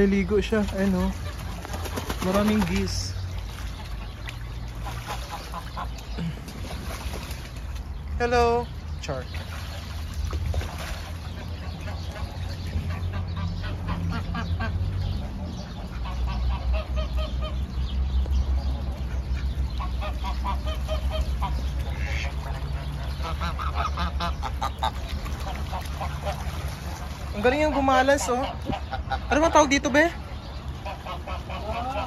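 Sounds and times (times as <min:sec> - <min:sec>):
geese honking: 0:19.8 - 0:30.1, 0:30.8 - 0:32.0.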